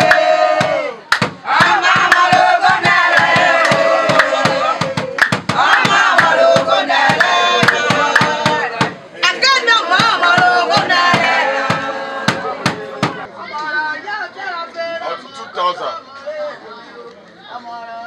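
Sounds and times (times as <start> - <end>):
hand claps: 0.0 - 0.3, 1.1 - 8.9
hand drum beat: 0.0 - 9.0
group of women singing: 0.0 - 13.3.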